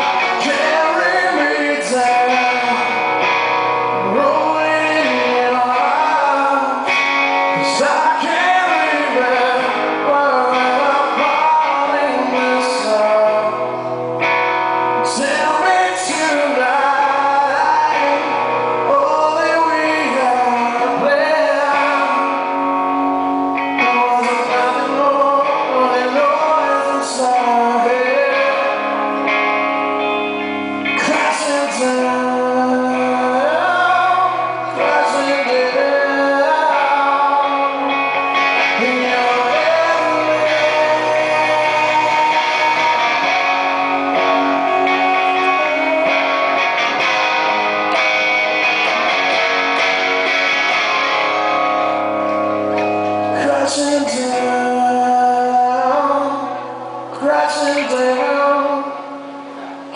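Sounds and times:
man singing: 0.0s - 29.6s, 30.8s - 50.0s, 53.0s - 59.9s
electric guitar: 0.0s - 59.9s
bass line: 27.2s - 57.4s.

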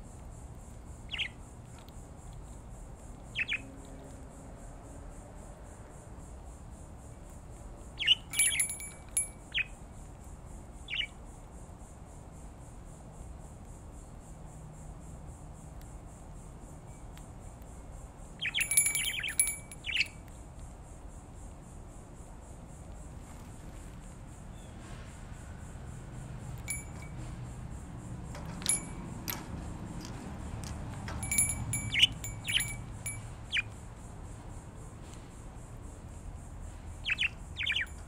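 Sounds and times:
budgerigars chirping: 1.1s - 1.4s, 3.3s - 3.6s, 8.0s - 8.6s, 10.9s - 11.1s, 18.4s - 20.1s, 31.8s - 32.8s, 33.5s - 33.7s, 37.0s - 38.0s
ringing bell tone: 8.3s - 9.4s, 18.4s - 20.1s, 26.6s - 27.2s, 28.4s - 29.4s, 31.1s - 33.4s.

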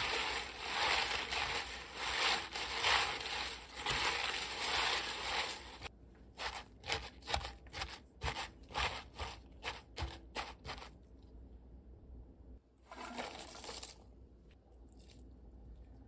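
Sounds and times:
cabbage leaves rustling and crunching: 0.0s - 7.5s.

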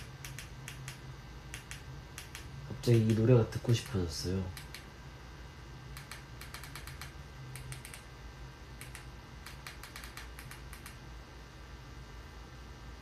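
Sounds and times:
typing clicks: 0.0s - 3.2s, 6.0s - 8.0s, 8.8s - 11.0s
steady low hum: 0.0s - 13.0s.

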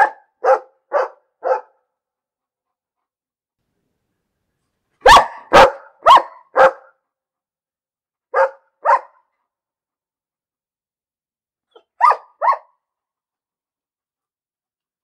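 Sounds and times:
dog barking: 0.0s - 1.9s, 5.0s - 7.0s, 8.3s - 9.4s, 11.7s - 12.8s.

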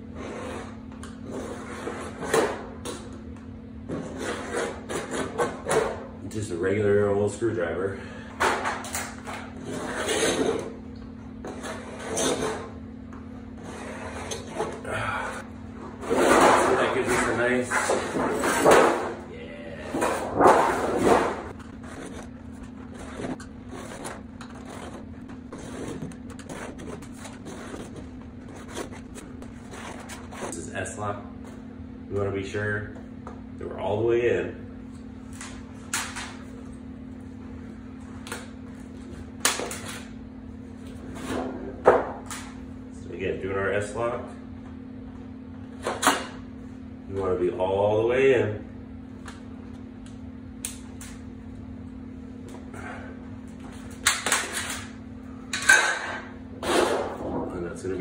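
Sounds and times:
steady low hum: 0.0s - 58.0s
screwdriver scratching sheet metal: 22.9s - 30.6s.

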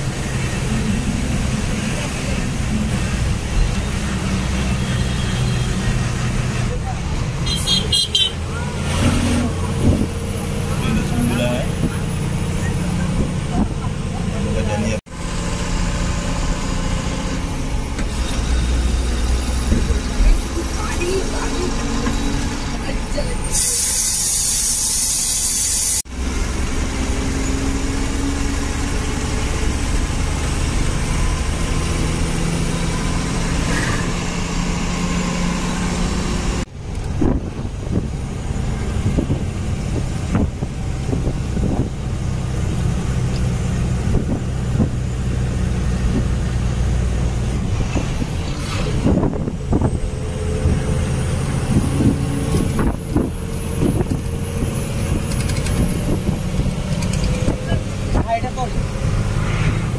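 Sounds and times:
bus engine running: 0.0s - 59.9s
road noise: 0.0s - 59.9s
loud hiss: 23.4s - 26.0s.

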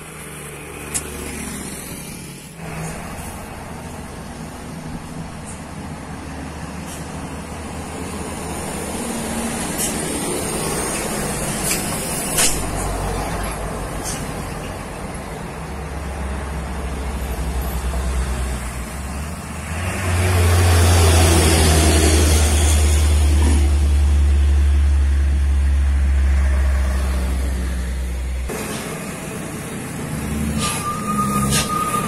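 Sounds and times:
diesel truck engine rumble: 0.0s - 32.0s
air brake hisses: 30.5s - 32.0s.

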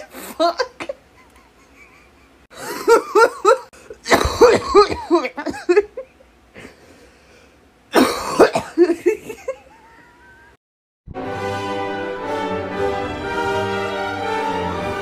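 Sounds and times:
person laughing breathily: 0.0s - 4.6s, 5.9s - 7.4s, 8.9s - 10.6s.

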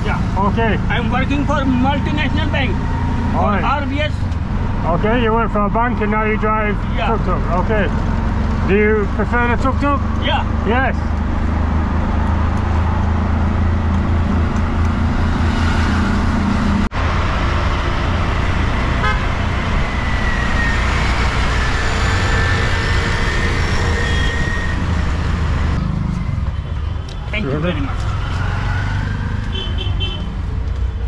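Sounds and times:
auto-rickshaw engine running: 0.0s - 26.8s
road noise: 0.0s - 31.0s
vehicle horns: 19.0s - 20.4s, 29.4s - 30.4s.

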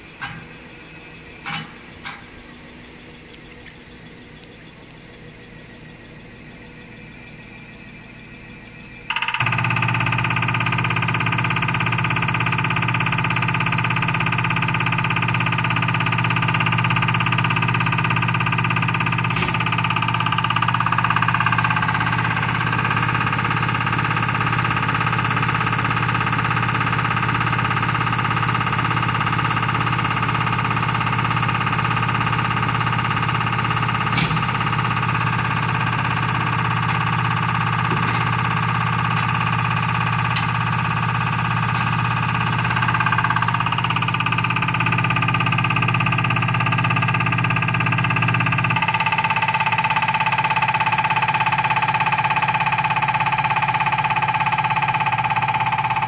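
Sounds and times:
test bench motor and pump running: 0.0s - 56.0s
low hum: 32.2s - 45.4s.

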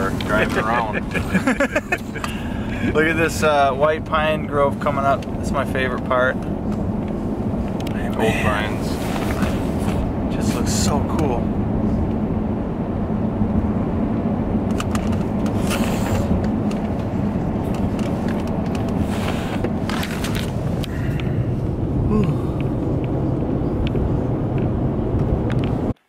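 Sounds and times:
truck engine and tyres rumbling: 0.0s - 26.0s
clicks and rattles: 14.7s - 15.8s.

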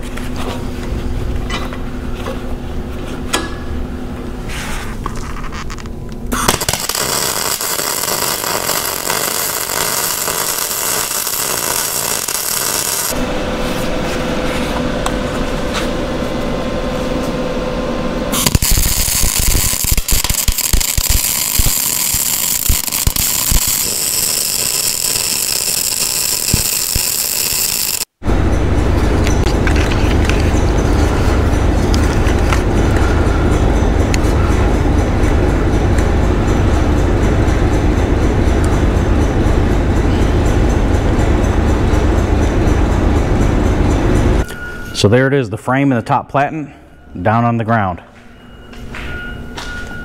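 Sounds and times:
arc welding hiss and crackle: 6.3s - 13.2s, 18.4s - 28.2s
power tool whine: 6.4s - 13.3s, 18.3s - 28.2s.

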